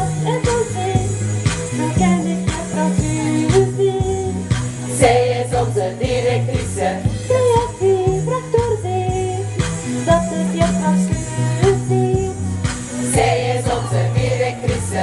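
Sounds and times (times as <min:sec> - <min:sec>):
pop backing track with beat: 0:00.0 - 0:15.0
women singing: 0:01.8 - 0:09.4, 0:13.0 - 0:15.0.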